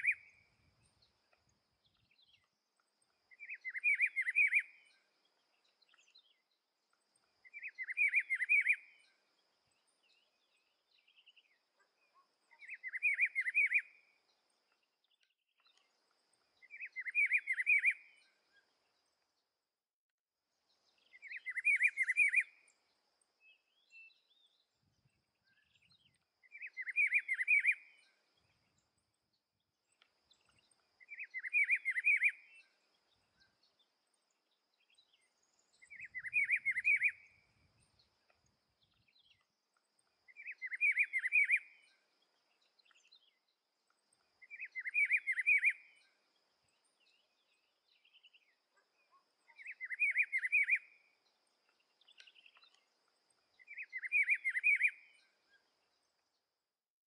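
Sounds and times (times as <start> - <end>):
faint high-pitched hiss: 0.0 - 19.5, 20.6 - 56.5
bird singing warbled phrase: 21.1 - 22.5, 35.8 - 37.4, 40.3 - 41.9, 44.4 - 46.0, 47.1 - 51.0, 53.6 - 55.2.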